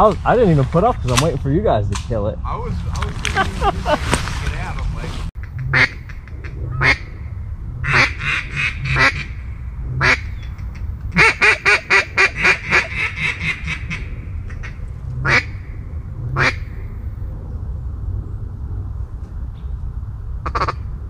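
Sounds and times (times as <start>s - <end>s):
low steady rumble: 0.0s - 21.0s
duck quacking: 5.5s - 7.0s, 7.8s - 9.4s, 10.0s - 10.3s, 11.2s - 14.0s, 14.6s - 15.5s, 20.4s - 20.8s.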